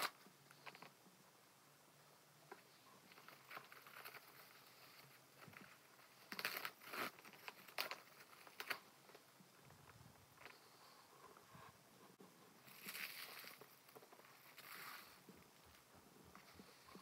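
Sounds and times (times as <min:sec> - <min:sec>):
plastic wrap crinkling: 0:03.1 - 0:09.2, 0:12.6 - 0:17.0.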